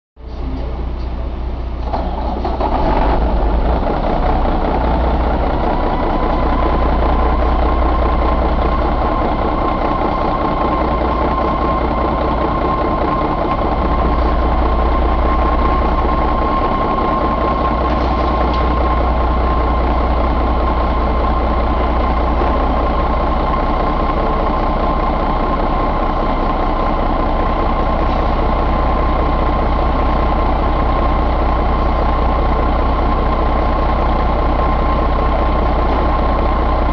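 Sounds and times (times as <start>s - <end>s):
diesel engine idling: 0.2s - 36.9s
high whine: 3.7s - 30.1s.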